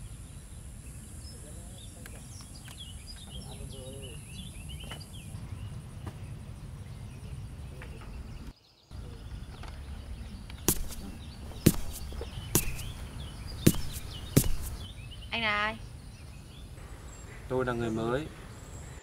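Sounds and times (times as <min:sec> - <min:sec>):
birds chirping: 0:00.9 - 0:19.0
footsteps on pavement: 0:10.7 - 0:14.9.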